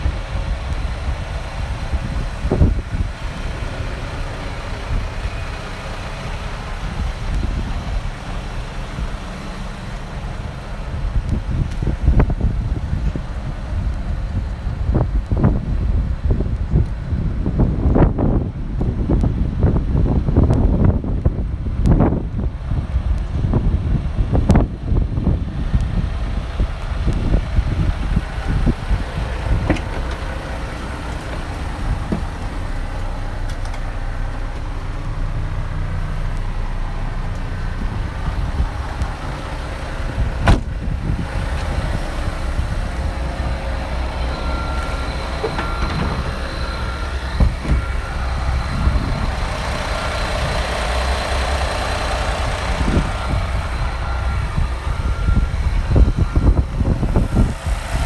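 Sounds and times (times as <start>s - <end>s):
truck diesel engine idling: 0.0s - 58.0s.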